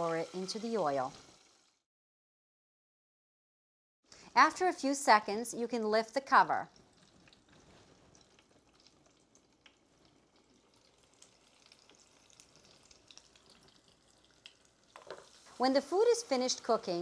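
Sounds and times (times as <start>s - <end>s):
fries sizzling in hot oil: 0.0s - 1.8s, 6.2s - 17.0s.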